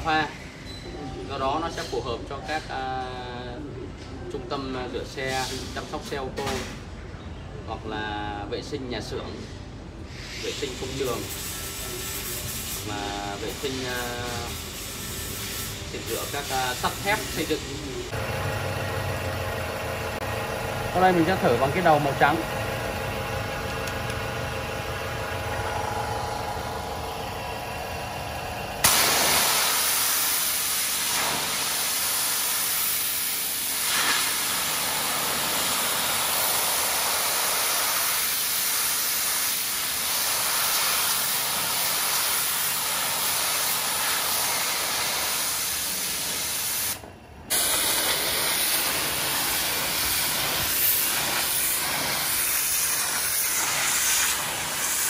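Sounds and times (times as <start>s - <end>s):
pressure washer humming: 16.7s - 55.0s
water jet spraying onto concrete: 28.8s - 55.0s.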